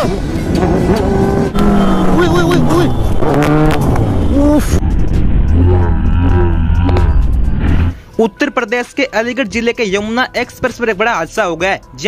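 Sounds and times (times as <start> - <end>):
person crying out: 5.6 - 7.2.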